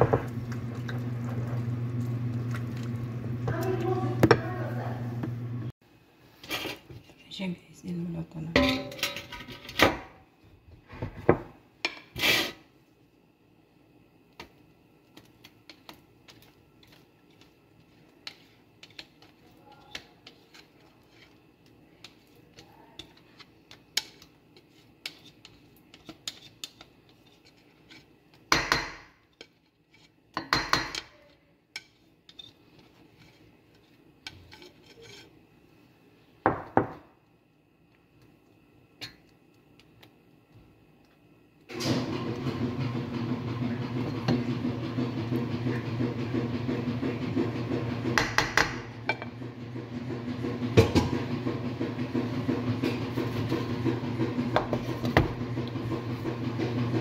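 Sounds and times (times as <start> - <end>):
utensils clinking against bowl: 8.6 - 9.8.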